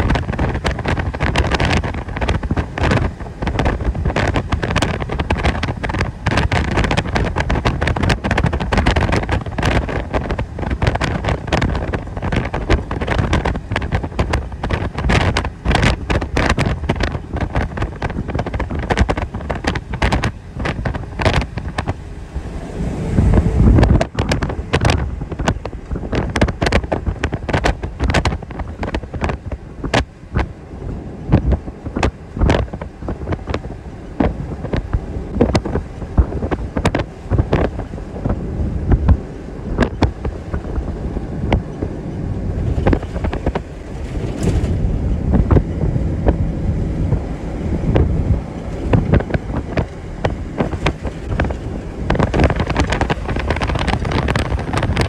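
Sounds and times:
wind on microphone: 0.0 - 55.0.

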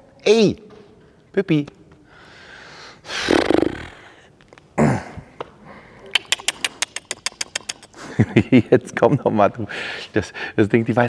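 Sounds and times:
horse snorting: 3.1 - 4.0
rapid sharp clicks: 6.2 - 8.0.

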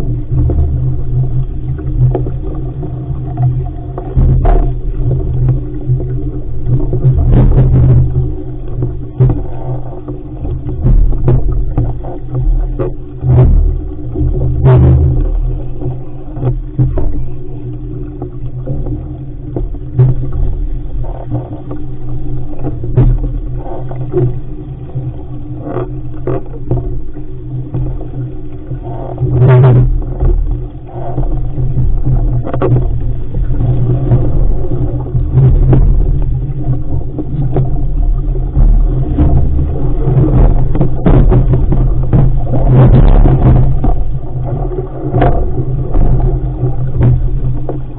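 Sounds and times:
hull slapping waves: 0.0 - 47.9
wind buffeting microphone: 31.7 - 47.9.

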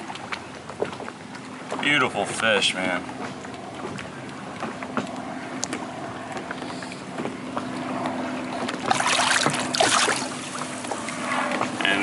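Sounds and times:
water lapping: 0.0 - 12.0
fish splashing: 7.9 - 11.8.

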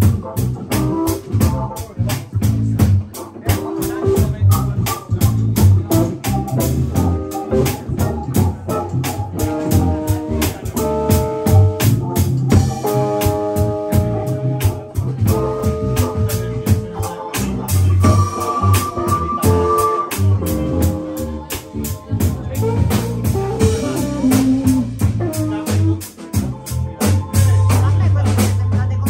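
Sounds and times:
electric guitar: 0.0 - 26.4
drum kit beat: 0.0 - 29.0
electric bass: 0.0 - 29.0
organ chords: 0.0 - 29.0.

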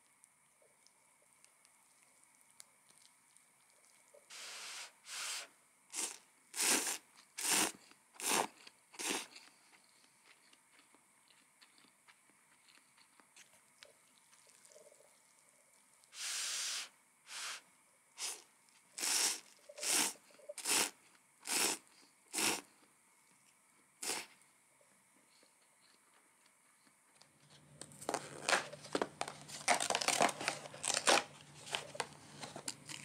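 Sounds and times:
long hiss: 4.2 - 9.3, 15.3 - 22.9, 24.0 - 24.6
short hisses: 4.3 - 7.7, 16.2 - 18.4.

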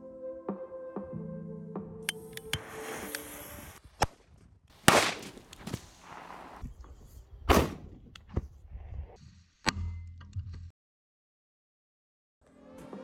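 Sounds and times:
firecracker cracks: 4.8 - 5.9
loud explosive bangs with echo: 4.9 - 5.4.

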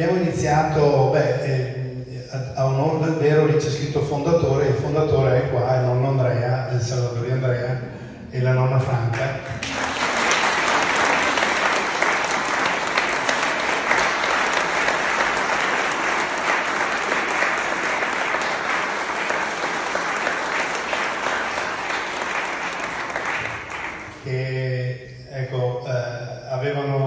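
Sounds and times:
audience applauding: 9.5 - 24.4.

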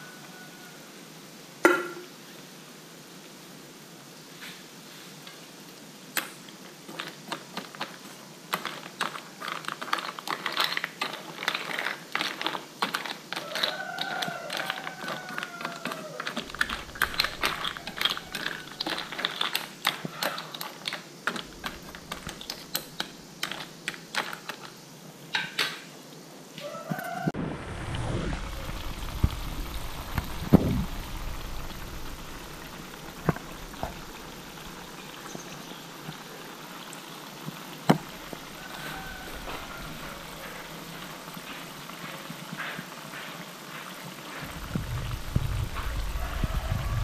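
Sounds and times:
sauce bubbling with sharp pops: 16.3 - 20.2, 20.8 - 24.1, 27.9 - 36.3.

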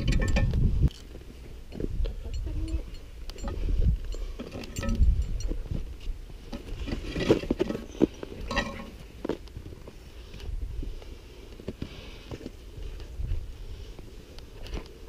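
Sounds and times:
metal climbing gear clinking: 0.0 - 9.4
wind rumble on microphone: 0.0 - 11.3, 12.3 - 15.0.

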